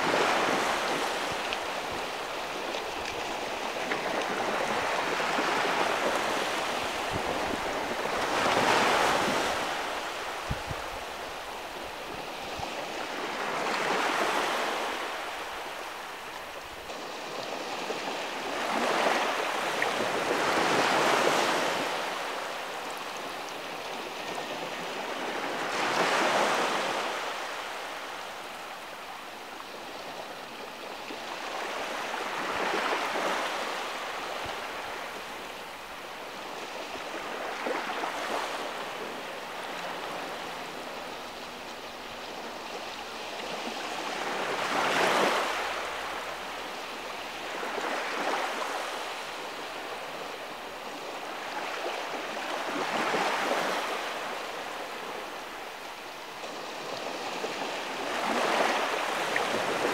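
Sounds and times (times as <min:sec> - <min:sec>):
small waves washing over sand: 0:00.0 - 0:59.9.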